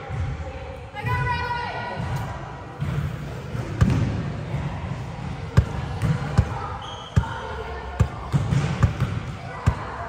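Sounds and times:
background chatter: 0:00.0 - 0:10.0
basketball bouncing on court: 0:05.6 - 0:10.0.

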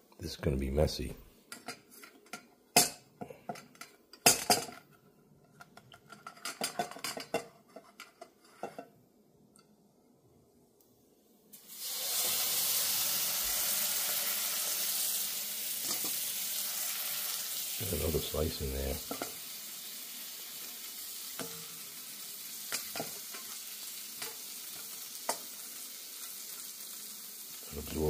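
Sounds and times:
frying pan sizzling: 0:11.5 - 0:28.0.

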